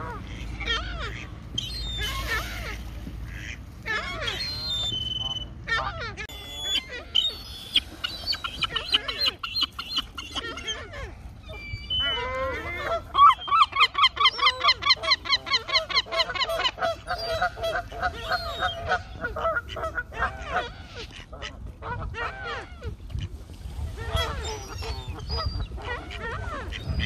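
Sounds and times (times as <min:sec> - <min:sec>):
herring gull calling: 0:00.0 - 0:21.0, 0:24.1 - 0:27.0
higher thinner bird calls: 0:06.3 - 0:10.7.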